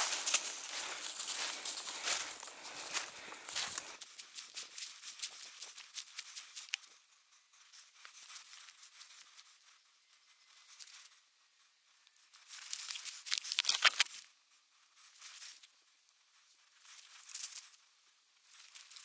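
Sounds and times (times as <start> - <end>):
rustling in dry leaves: 0.0 - 7.0, 12.4 - 14.3, 16.7 - 17.8.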